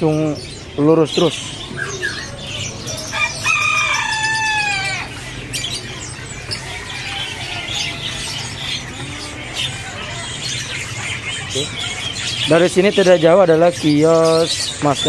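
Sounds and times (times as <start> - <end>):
songbirds chirping: 0.0 - 15.0
rooster crowing: 2.9 - 5.2, 6.6 - 8.6.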